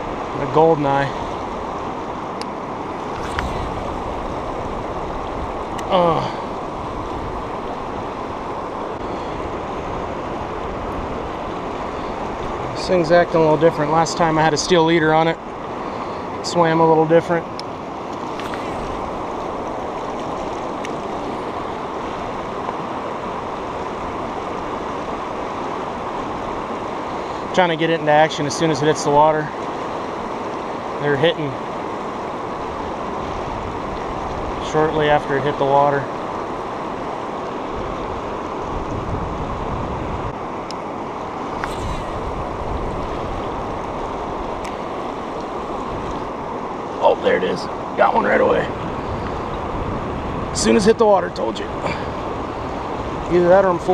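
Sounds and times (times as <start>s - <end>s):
river rushing over rocks: 0.0s - 39.8s, 40.4s - 53.9s
wind on microphone: 2.7s - 12.8s, 18.2s - 25.3s, 36.4s - 40.5s, 41.3s - 46.9s, 48.6s - 50.8s.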